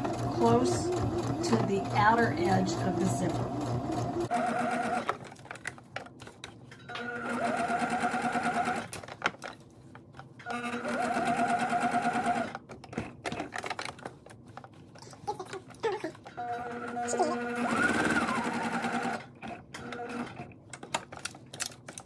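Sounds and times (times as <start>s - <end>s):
sewing machine stitching: 0.0s - 5.2s, 7.0s - 8.9s, 10.4s - 12.6s, 16.3s - 20.6s.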